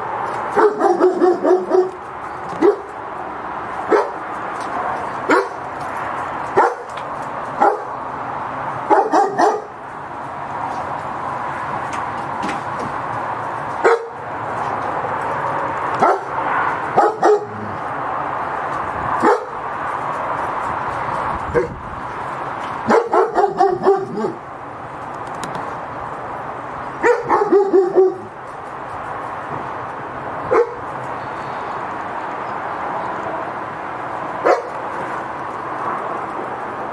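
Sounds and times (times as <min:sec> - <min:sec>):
steady background noise: 0:00.0 - 0:36.9
dog barking: 0:00.6 - 0:02.9, 0:03.9 - 0:04.2, 0:05.3 - 0:05.6, 0:06.6 - 0:06.9, 0:07.6 - 0:07.9, 0:08.9 - 0:09.7, 0:13.8 - 0:14.2, 0:16.0 - 0:16.3, 0:17.0 - 0:17.6, 0:19.2 - 0:19.6, 0:22.8 - 0:24.4, 0:27.0 - 0:28.3, 0:30.5 - 0:30.8, 0:34.4 - 0:34.8.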